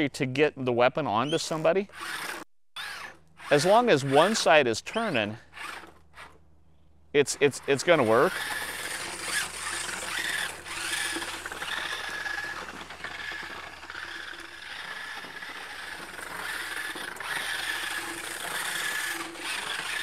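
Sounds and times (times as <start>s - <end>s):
electric motors whining: 1.2s - 6.4s, 7.3s - 20.0s
wheels rattling and scraping: 7.3s - 20.0s.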